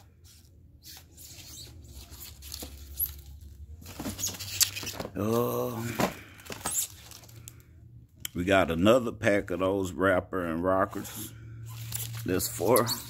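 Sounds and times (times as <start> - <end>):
cardboard and plastic crinkling: 1.9 - 7.6.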